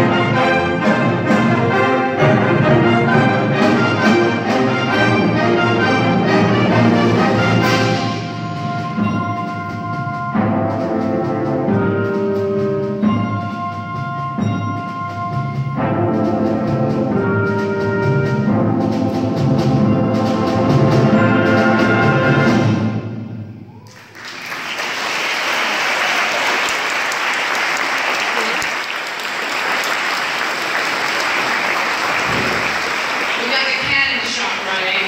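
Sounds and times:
concert band chords: 0.0s - 23.7s, 24.7s - 35.0s
audience applause: 23.8s - 34.7s.

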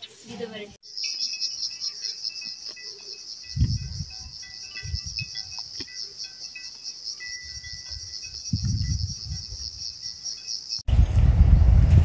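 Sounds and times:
insects buzzing: 0.8s - 10.8s
low rumble: 10.9s - 12.0s.

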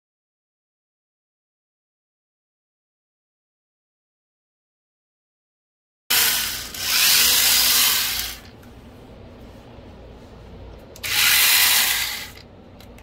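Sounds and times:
electric chainsaw bursts: 6.1s - 8.5s, 11.0s - 12.4s.

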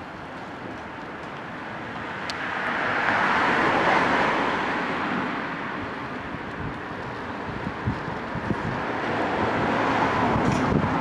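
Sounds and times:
vehicle passing by: 8.3s - 11.0s.

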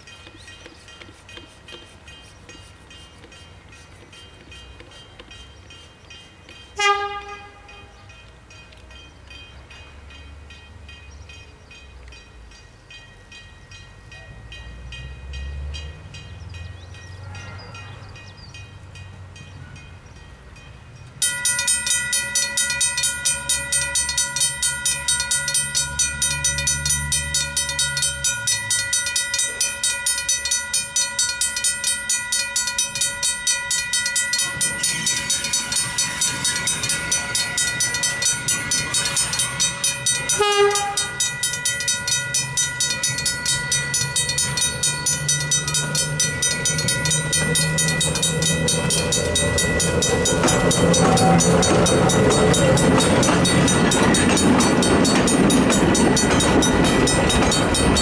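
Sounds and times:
level crossing bells ringing: 0.0s - 58.0s
train rumble: 0.0s - 58.0s
train horn toot: 6.8s - 8.1s, 40.3s - 41.2s.

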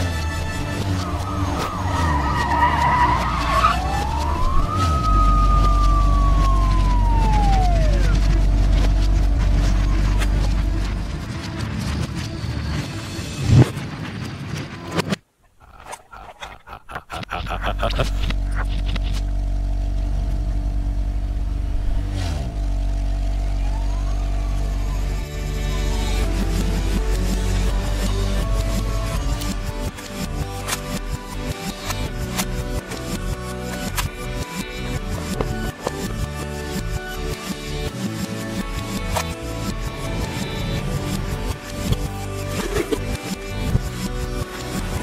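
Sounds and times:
toy vehicle engine drone: 0.0s - 10.9s
police siren: 0.1s - 10.7s, 23.3s - 26.2s
faint rising tone: 0.8s - 10.7s.

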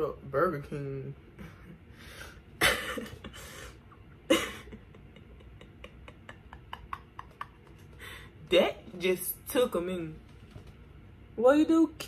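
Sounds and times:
woman laughing: 2.6s - 8.3s.

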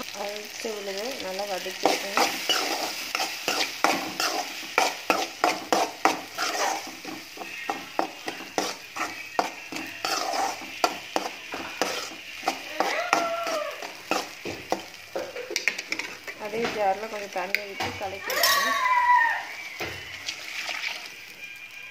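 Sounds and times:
light sizzle of frying: 0.0s - 21.9s
metal spatula scraping metal pan: 1.7s - 18.8s.

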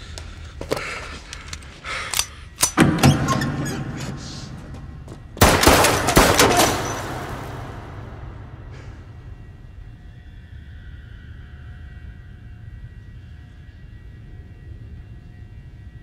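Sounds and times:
fight hits and crashes: 5.4s - 9.0s.

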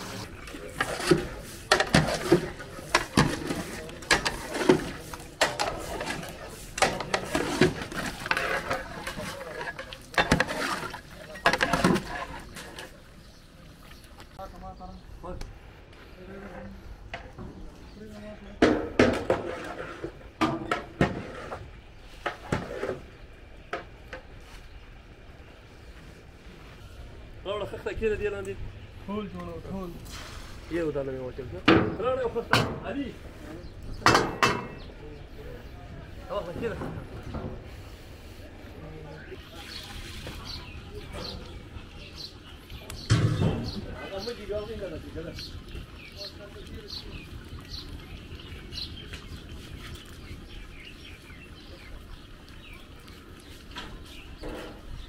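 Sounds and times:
knocks and scraping strokes: 0.0s - 13.0s, 18.6s - 24.8s
cookware knocking and clanking: 34.0s - 34.9s.

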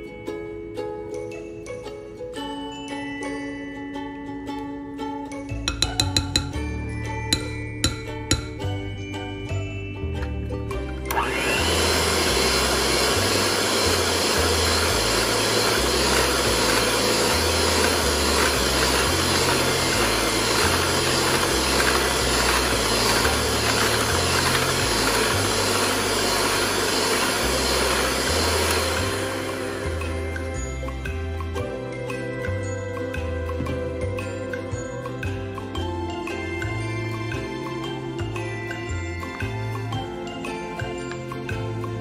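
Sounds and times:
background music with bass line: 5.4s - 42.0s
electric hand mixer whipping batter: 11.1s - 31.2s.

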